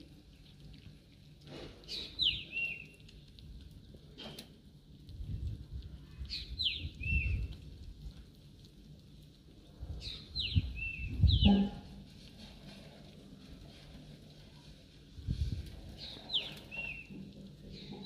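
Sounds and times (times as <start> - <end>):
low rustles and bumps: 6.7 - 18.0.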